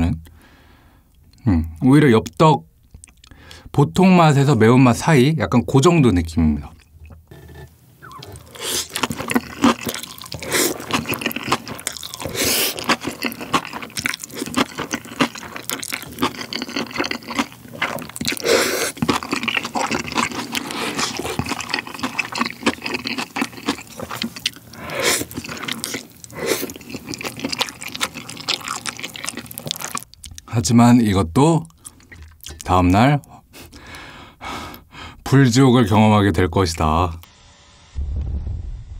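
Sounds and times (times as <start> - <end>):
wet chewing mouth sounds: 6.7 - 30.5, 31.6 - 34.0
slurping noodles: 7.3 - 30.0.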